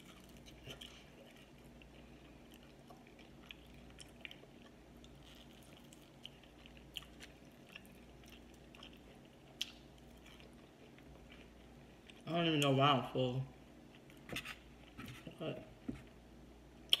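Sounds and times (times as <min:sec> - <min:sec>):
chewing and biting food: 0:00.0 - 0:12.2
low steady hum: 0:00.0 - 0:17.0.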